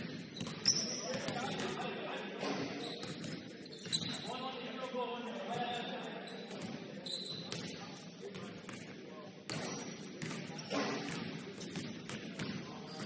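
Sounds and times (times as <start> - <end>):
indistinct voices in a hall: 0.6 - 13.0
basketball bouncing: 9.5 - 13.0.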